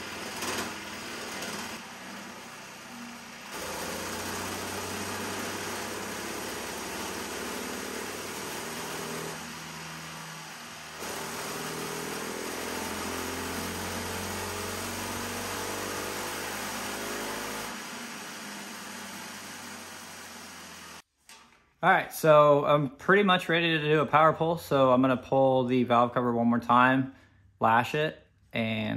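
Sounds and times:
kart engine running: 0.0s - 21.0s.

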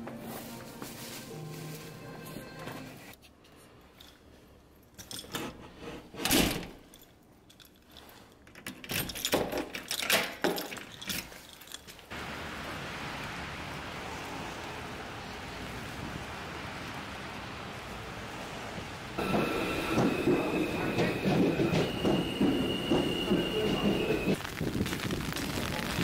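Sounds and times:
keys jangling: 6.8s - 12.1s
rushing outdoor noise: 12.1s - 26.0s.

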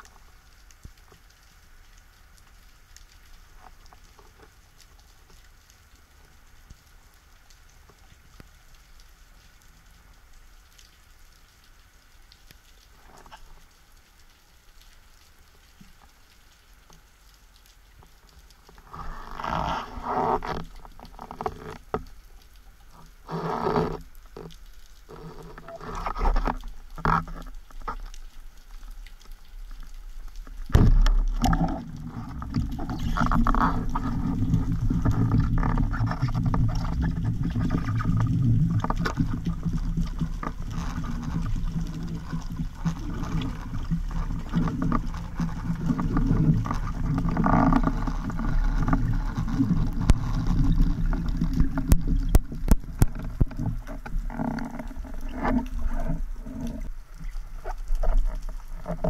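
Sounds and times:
underwater rushing rumble: 30.6s - 59.0s.

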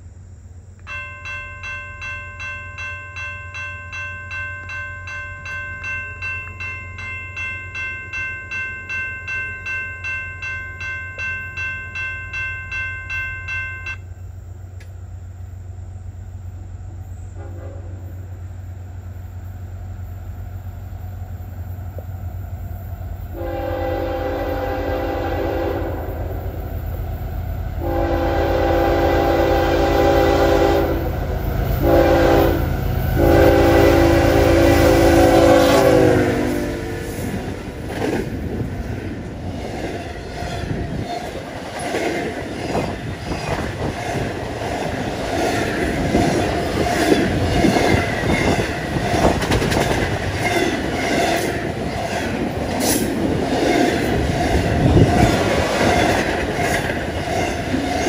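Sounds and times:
low train rumble: 0.0s - 58.0s
bell ringing: 0.8s - 14.2s
train horn blasts: 17.3s - 18.3s, 23.3s - 26.6s, 27.8s - 37.6s.

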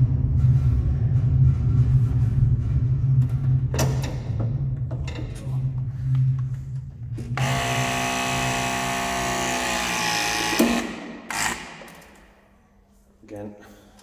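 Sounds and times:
crimping tool motor whine: 7.4s - 11.8s.

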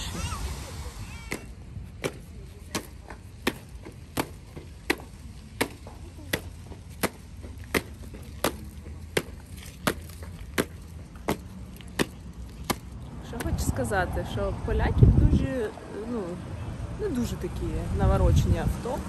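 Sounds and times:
boots marching on stone paving: 1.4s - 14.0s.

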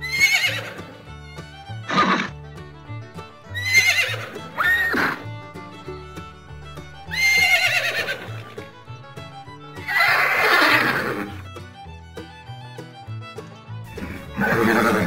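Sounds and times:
horses neighing: 0.0s - 1.0s, 1.9s - 2.4s, 3.5s - 5.4s, 7.0s - 8.6s, 9.8s - 11.5s, 13.9s - 15.0s
background music: 0.0s - 15.0s.

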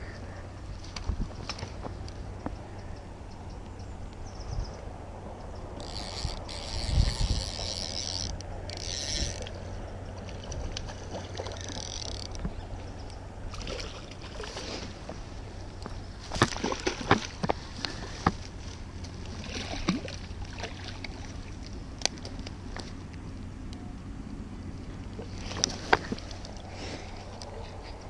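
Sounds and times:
fishing reel ratcheting: 5.8s - 9.6s, 11.6s - 12.4s.

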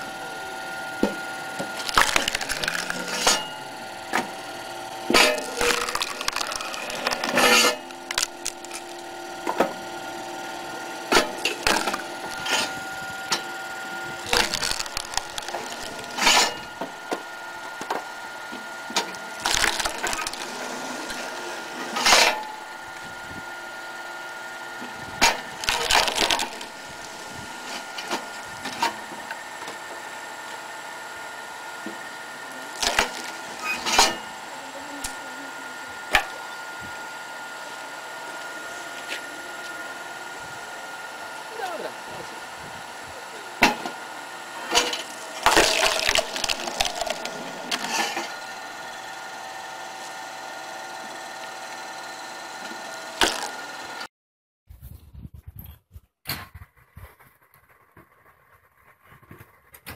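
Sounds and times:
log splitter motor humming: 0.0s - 54.1s
logs cracking and splitting: 1.7s - 3.3s, 5.2s - 9.1s, 11.2s - 12.5s, 14.2s - 16.8s, 19.4s - 20.6s, 25.3s - 27.6s, 32.7s - 33.6s, 45.0s - 47.9s.

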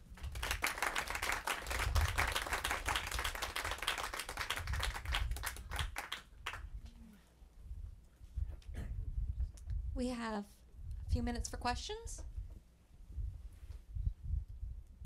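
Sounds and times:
audience applause: 0.0s - 6.6s.

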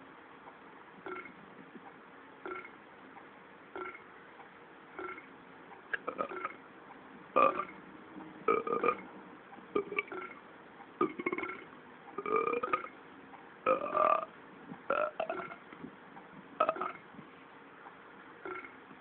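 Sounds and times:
cartoon cat burping: 3.8s - 4.0s, 7.4s - 7.7s, 11.0s - 11.6s, 12.2s - 12.9s, 13.7s - 14.3s, 14.9s - 15.6s, 16.6s - 17.0s, 18.4s - 18.7s.

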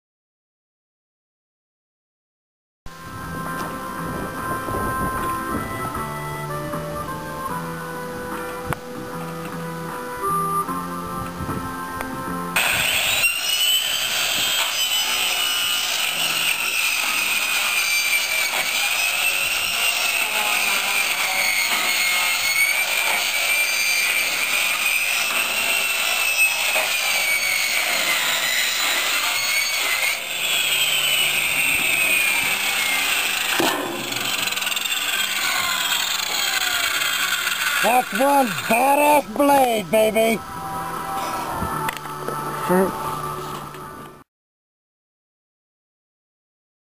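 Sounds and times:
circular saw cutting metal: 12.6s - 39.9s.

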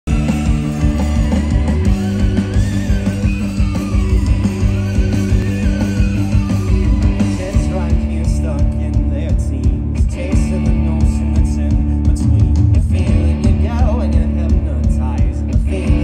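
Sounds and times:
steady drum beat: 0.0s - 16.0s
electric guitars: 0.1s - 16.0s.

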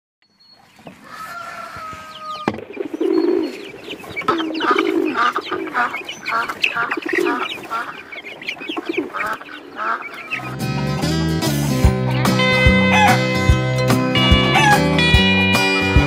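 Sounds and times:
poultry calling: 0.4s - 11.2s, 12.0s - 13.5s, 14.2s - 15.9s.

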